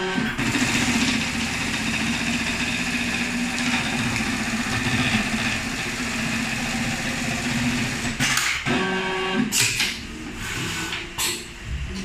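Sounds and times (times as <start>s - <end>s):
sewing machine stitching: 0.2s - 8.4s.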